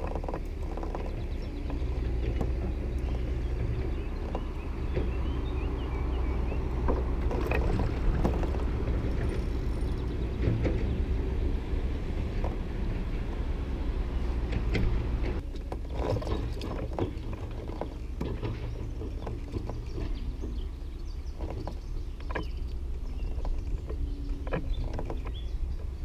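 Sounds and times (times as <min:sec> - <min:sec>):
wind and water rumble: 0:00.0 - 0:26.0.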